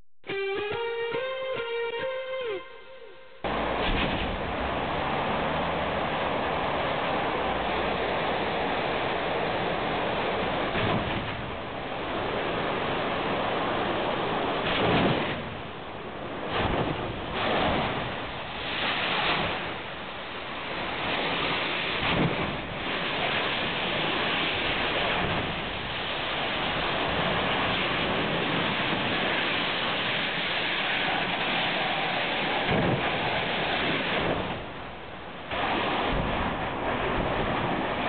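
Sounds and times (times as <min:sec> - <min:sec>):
steady rushing noise: 0:03.4 - 0:38.0
gas cylinders exploding: 0:03.5 - 0:05.6.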